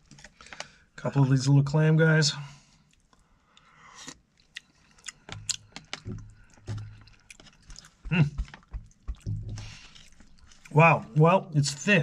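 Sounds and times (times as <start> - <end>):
chewing: 2.8 - 10.8
brief low thud: 9.1 - 9.8.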